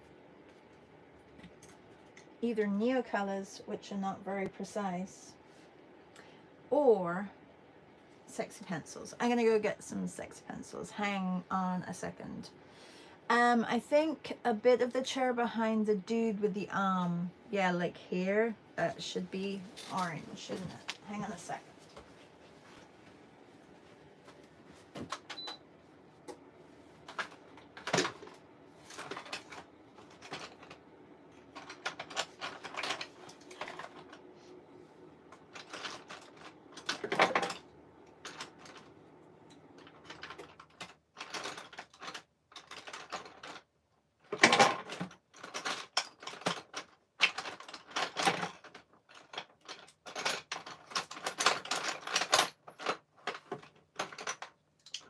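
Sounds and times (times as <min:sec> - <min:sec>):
coloured pencils clattering: 0:27.0 - 0:30.8, 0:31.4 - 0:34.2, 0:35.3 - 0:37.6, 0:39.8 - 0:43.7, 0:44.3 - 0:55.0.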